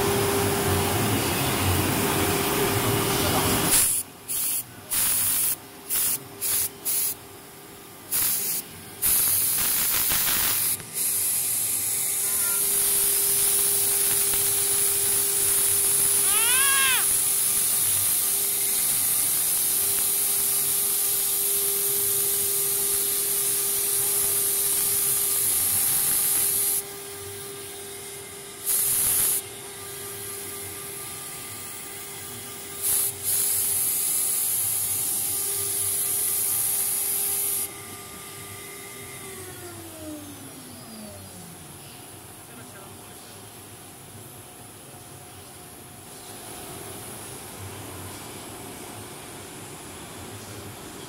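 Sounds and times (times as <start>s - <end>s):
hiss of cutting plastic: 3.5s - 7.2s, 8.1s - 26.8s, 28.6s - 29.5s, 32.7s - 37.7s.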